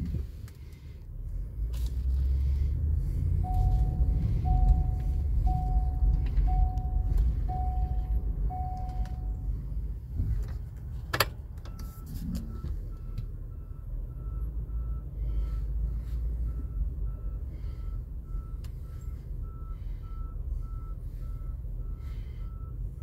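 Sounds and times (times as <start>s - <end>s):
pickup engine idling: 0.6s - 23.0s
dashboard warning chime: 3.4s - 9.8s, 11.6s - 15.5s, 16.4s - 23.0s.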